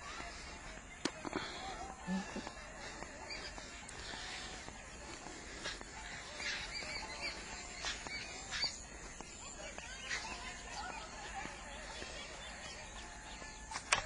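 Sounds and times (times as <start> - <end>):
birds chirping: 0.0 - 14.0.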